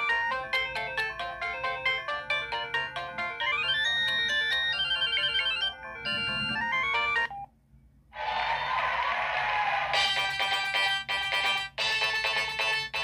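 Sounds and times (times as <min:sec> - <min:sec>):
fuller ringtone melody: 0:00.0 - 0:07.5, 0:10.0 - 0:13.0
synthesized phone ringtone melody: 0:00.0 - 0:07.5.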